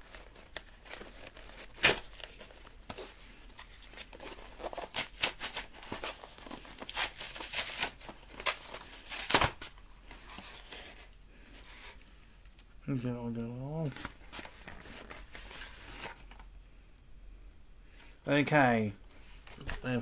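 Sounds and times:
packaging ripping: 0.0s - 2.6s, 4.5s - 9.7s.

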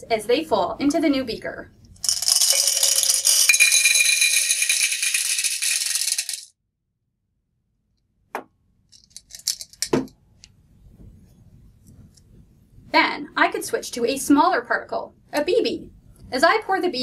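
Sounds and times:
glass marbles clinking: 2.0s - 6.5s.

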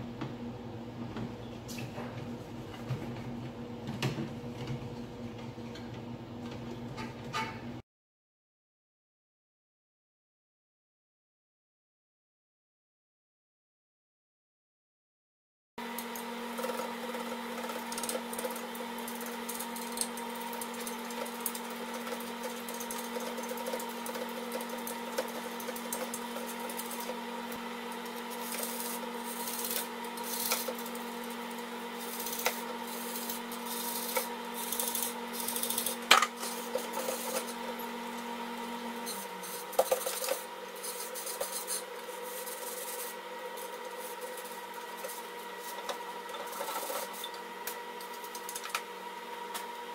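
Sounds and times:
brush scrubbing ice maker grid: 16.5s - 38.3s, 38.9s - 47.4s.

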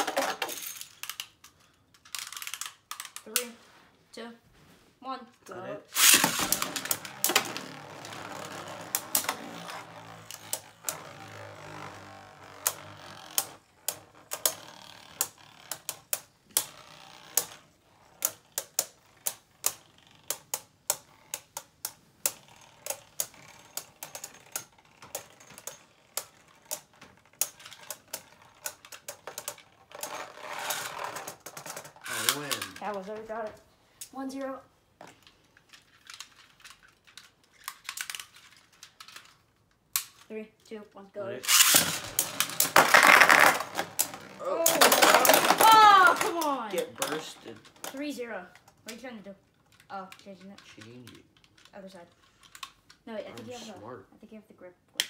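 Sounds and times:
spinning tops clacking: 5.9s - 11.0s, 41.5s - 48.0s
spinning tops whirring: 5.9s - 32.8s, 41.5s - 48.1s.

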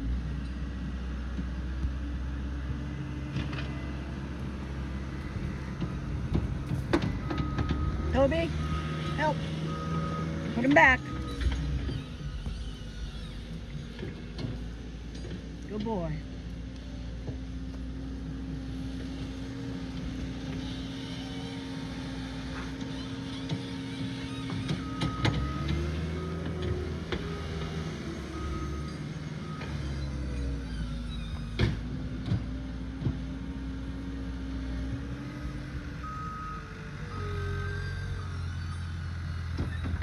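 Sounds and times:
skid steer engine running: 0.0s - 40.0s
reversing alarm beeping: 7.0s - 13.6s, 24.1s - 31.4s, 35.4s - 39.8s.

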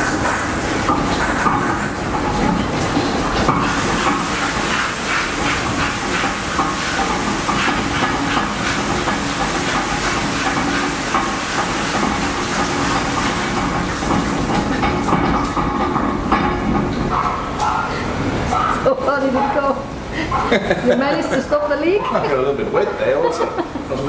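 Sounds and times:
water spraying under pressure: 0.0s - 17.6s.

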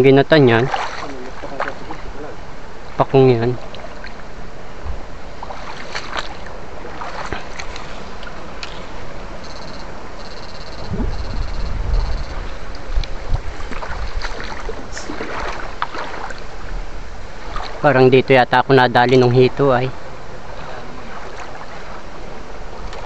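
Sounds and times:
low rumble of movement through water: 0.0s - 18.3s, 19.1s - 23.0s
water sloshing around wading person: 0.0s - 18.3s, 19.0s - 23.0s
knocks and splashes: 0.5s - 2.2s, 4.9s - 8.9s, 12.5s - 16.8s, 17.4s - 17.8s, 20.6s - 22.1s, 22.8s - 23.0s
short high-pitched buzzes: 9.4s - 12.7s.

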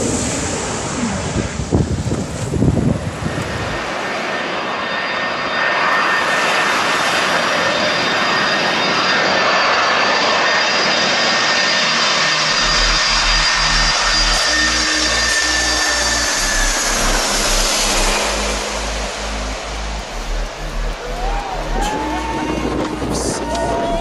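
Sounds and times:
wind buffeting microphone: 0.0s - 4.0s, 17.4s - 24.0s
high steady whine: 0.0s - 24.0s
jet engine roar: 0.0s - 24.0s.

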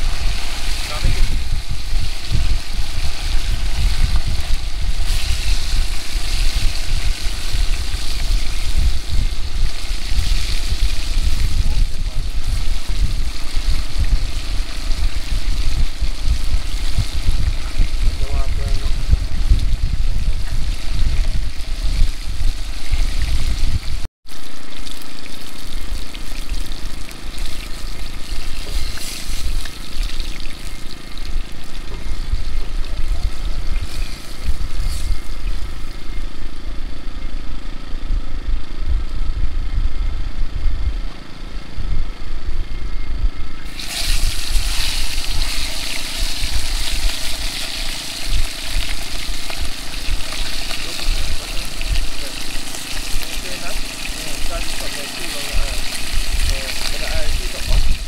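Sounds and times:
fish sizzling in hot oil: 0.0s - 36.5s, 43.7s - 58.0s.

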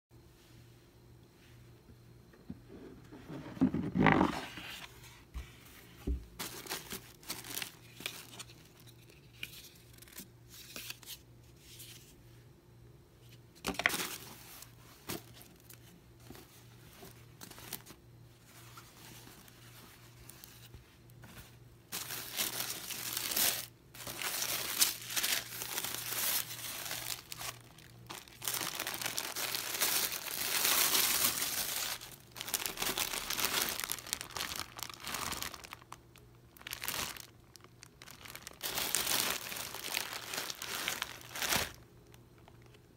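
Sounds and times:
box scraping and bumping: 2.9s - 4.7s
paper and plastic packaging crinkling: 6.0s - 11.2s, 13.6s - 42.9s.

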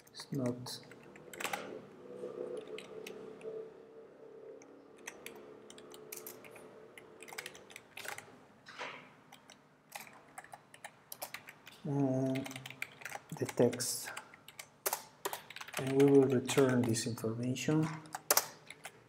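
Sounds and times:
typing on computer keyboard: 0.0s - 1.8s, 2.4s - 3.6s, 5.0s - 8.3s, 9.3s - 19.0s
faint hum: 0.0s - 14.8s.

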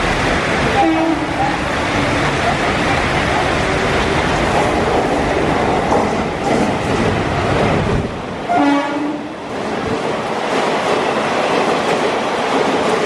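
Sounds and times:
train rumbling past: 0.0s - 13.0s
wheels clacking over rail joints: 0.0s - 13.0s
train horn: 0.7s - 1.6s, 8.5s - 9.4s.

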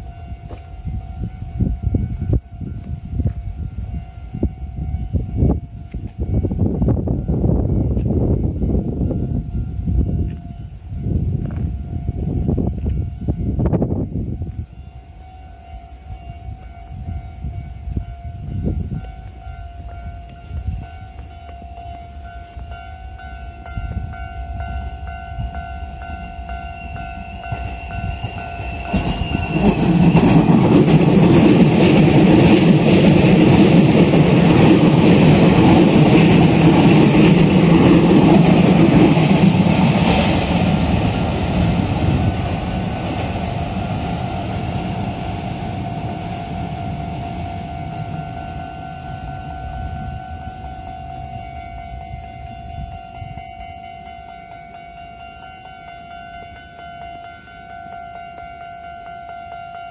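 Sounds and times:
train wheels rumbling on rails: 0.0s - 59.9s
level-crossing alarm ringing: 14.3s - 59.9s.

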